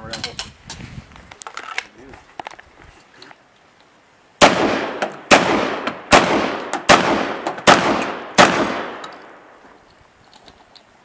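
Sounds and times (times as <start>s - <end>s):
shotgun shots: 4.4s - 9.5s.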